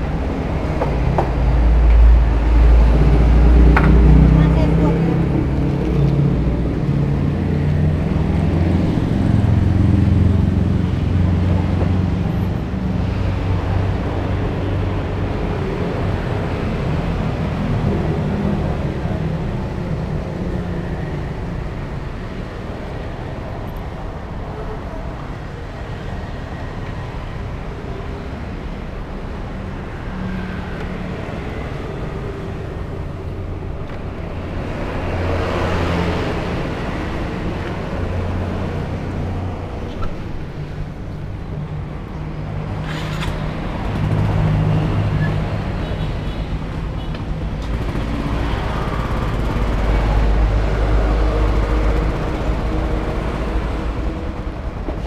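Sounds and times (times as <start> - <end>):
road traffic passing: 0.0 - 55.0
motorbike engines running: 42.2 - 54.8.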